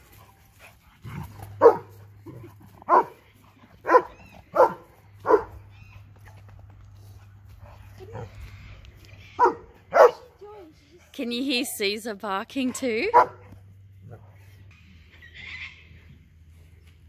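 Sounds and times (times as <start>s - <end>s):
dog barking: 1.6s - 1.9s, 2.9s - 3.2s, 3.8s - 5.6s, 9.4s - 10.3s, 13.1s - 13.5s.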